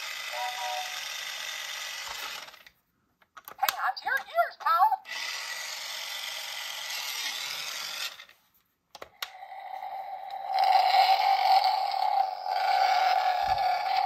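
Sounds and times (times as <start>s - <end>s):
toy car rushing sound effect: 0.0s - 2.7s, 4.7s - 8.3s, 9.3s - 14.0s.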